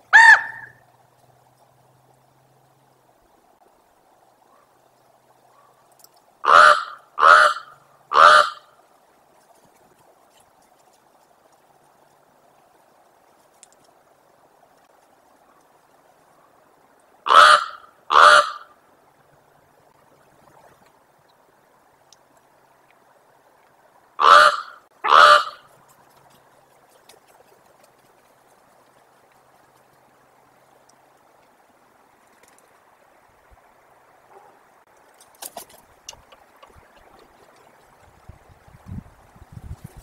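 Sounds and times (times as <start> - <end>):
raven croaking: 6.4 - 8.7, 17.2 - 18.8, 24.2 - 25.7.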